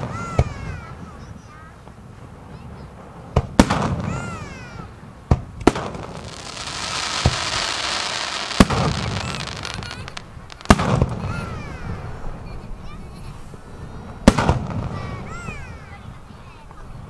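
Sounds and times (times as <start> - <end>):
crackling hiss of fireworks: 0.0 - 17.0
firework shell bangs: 5.3 - 12.1.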